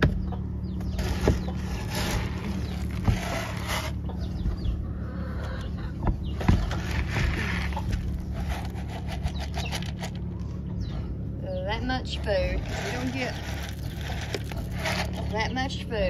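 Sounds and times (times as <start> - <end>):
steady low hum: 0.0 - 16.0
pellets rattling into bucket: 1.0 - 4.0, 6.6 - 10.2, 12.4 - 15.3.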